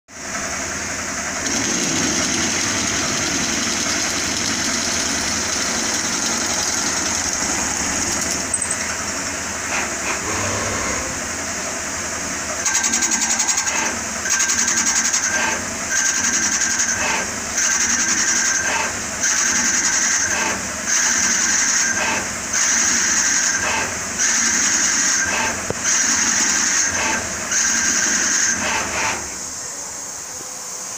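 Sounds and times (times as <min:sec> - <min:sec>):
lathe spindle whining: 0:00.8 - 0:12.0
tool cutting workpiece: 0:01.4 - 0:09.0, 0:09.6 - 0:11.4.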